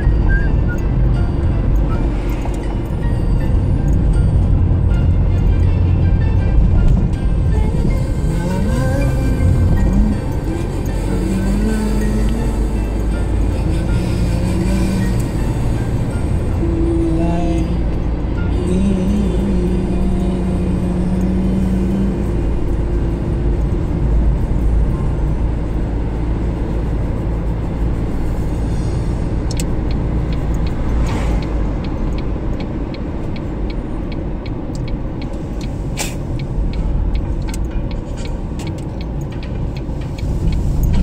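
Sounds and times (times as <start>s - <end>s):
car engine and road noise: 0.0s - 41.0s
turn indicator clicking: 29.4s - 41.0s.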